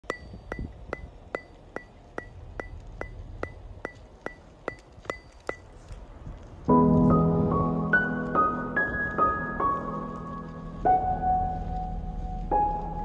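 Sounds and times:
footsteps crunching in snow: 3.3 - 13.0
piano music: 6.7 - 13.0.

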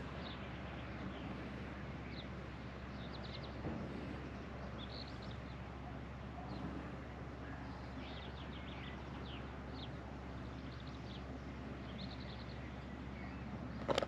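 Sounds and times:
low outdoor background noise: 0.0 - 14.0
small birds chirping: 7.4 - 14.0.

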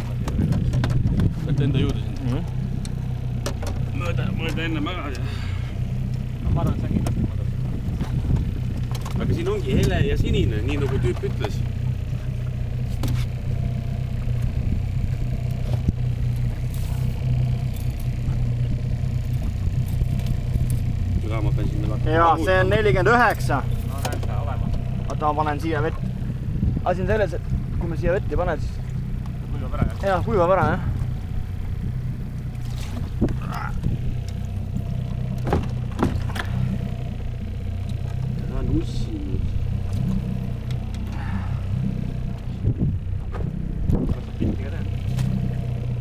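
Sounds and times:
bucket knocking against boat: 0.0 - 2.6, 35.4 - 36.8, 42.8 - 45.3
low hum: 0.0 - 46.0
outboard motor running: 0.0 - 46.0
water sloshing in bucket: 32.4 - 37.0.

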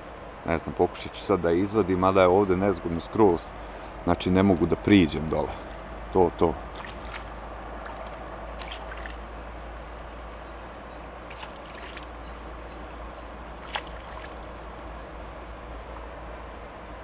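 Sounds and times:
fish splashing in water: 6.7 - 9.5, 10.8 - 12.4, 13.4 - 15.2
sharp ticks and clicks: 6.8 - 15.8.

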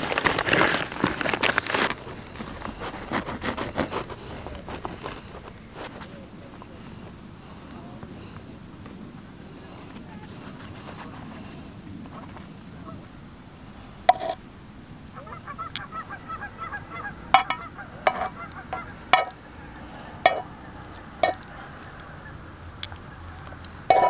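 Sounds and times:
short honking calls: 15.1 - 19.4.

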